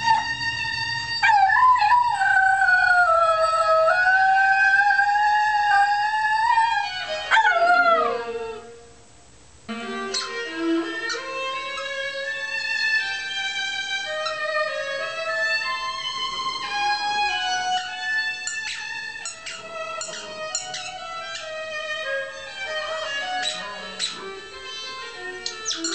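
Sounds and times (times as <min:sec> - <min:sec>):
dog howling: 0:00.0 - 0:08.7
viola playing: 0:00.0 - 0:09.0, 0:09.7 - 0:25.9.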